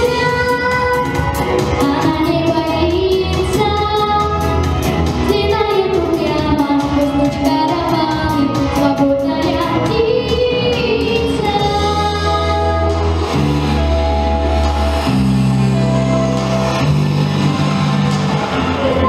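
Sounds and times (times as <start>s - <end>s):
girl singing pop ballad: 0.0s - 13.4s
instrumental accompaniment with bass: 0.0s - 19.0s.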